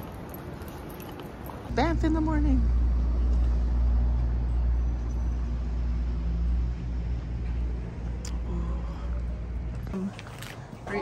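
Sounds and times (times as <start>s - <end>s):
street traffic rumble: 0.0s - 11.0s.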